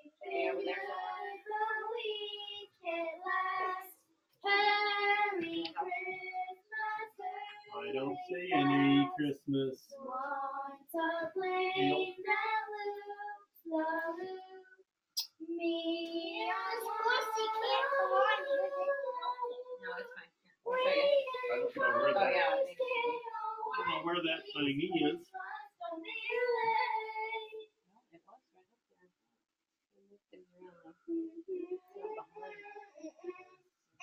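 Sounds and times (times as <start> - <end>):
girl singing unaccompanied: 0.0 - 14.7, 15.3 - 27.7, 31.0 - 33.5.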